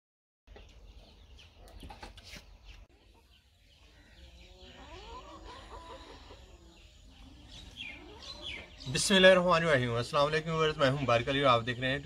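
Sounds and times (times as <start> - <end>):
small birds chirping: 0.5 - 12.0
chicken calling: 1.6 - 9.3.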